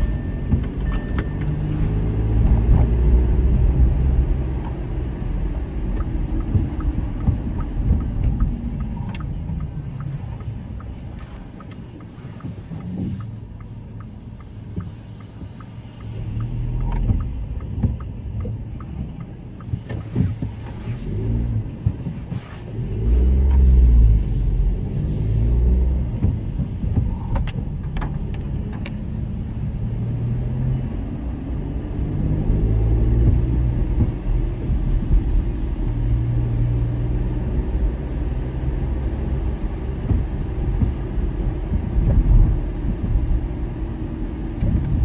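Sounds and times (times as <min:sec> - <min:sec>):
car engine and tyres rumbling: 0:00.0 - 0:45.0.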